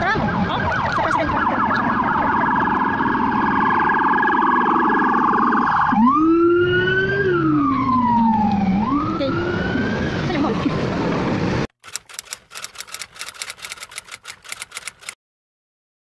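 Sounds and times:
police siren yelping and wailing: 0.0 - 11.2.

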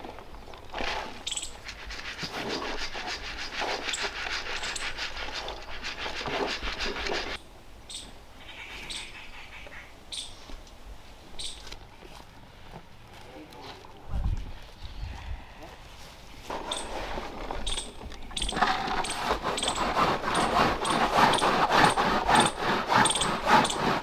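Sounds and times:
utensil scraping in a pan: 0.8 - 7.4.

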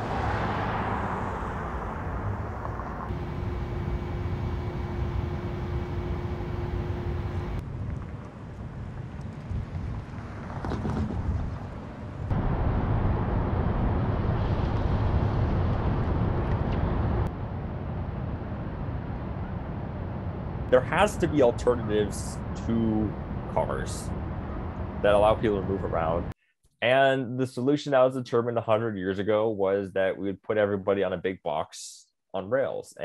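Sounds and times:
low outdoor rumble: 0.8 - 10.5, 11.2 - 26.3
faint steady hum: 3.1 - 7.6.

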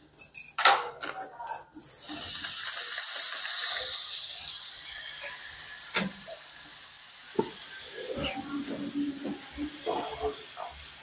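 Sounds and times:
fat sizzling in a pan: 1.7 - 11.0
utensil clatter: 7.4 - 11.0.

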